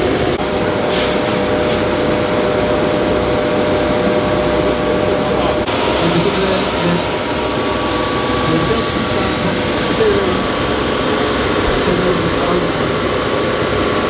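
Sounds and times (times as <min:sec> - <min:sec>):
crowd chatter: 0:04.7 - 0:13.0
car engine idling: 0:05.3 - 0:14.0.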